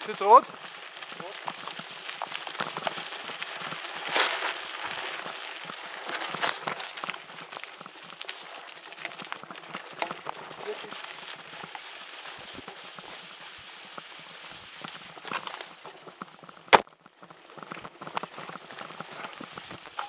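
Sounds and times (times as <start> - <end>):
bike rattling: 0.0 - 20.0
bike tyres crunching on leaves: 0.0 - 20.0.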